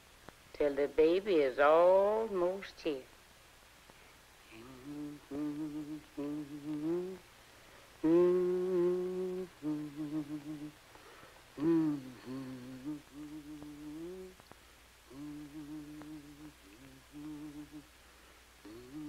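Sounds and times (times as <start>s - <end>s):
woman humming a slow tune: 4.5s - 7.2s, 8.0s - 10.8s, 11.6s - 14.4s, 15.1s - 17.9s, 18.6s - 19.0s
woman breathing: 7.4s - 8.0s, 10.9s - 12.8s, 18.0s - 19.0s.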